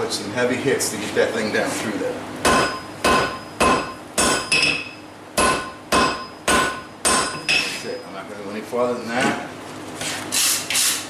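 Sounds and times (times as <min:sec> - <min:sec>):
hammer striking hot steel on anvil: 0:02.4 - 0:07.8.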